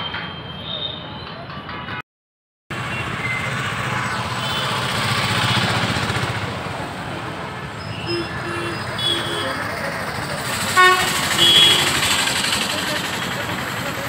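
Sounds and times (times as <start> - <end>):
motorbike engines running: 2.8 - 14.0
vehicle passing: 2.8 - 14.0
short horn toots: 10.8 - 12.2.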